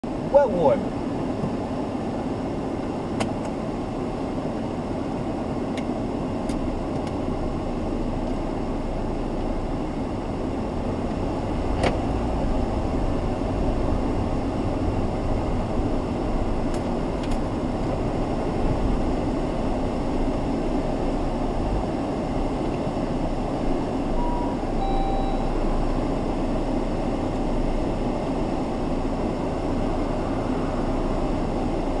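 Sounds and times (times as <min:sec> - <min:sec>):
car engine and road rumble: 0:00.0 - 0:32.0
short electronic beeps: 0:24.2 - 0:25.6.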